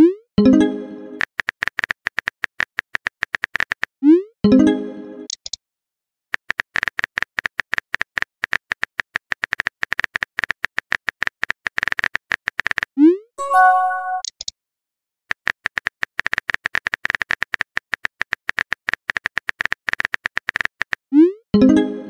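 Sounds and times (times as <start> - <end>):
multi-tone chime: 13.4 - 14.2.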